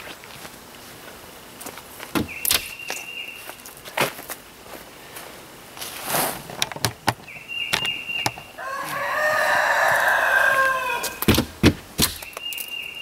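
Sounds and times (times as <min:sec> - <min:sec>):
rooster crowing: 0:08.5 - 0:11.2.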